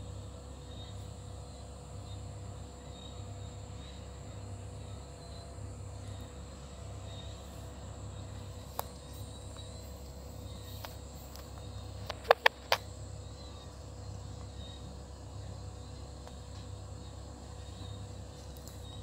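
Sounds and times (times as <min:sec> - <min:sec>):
faint low hum: 0:00.0 - 0:19.0
high insect tones: 0:00.0 - 0:19.0.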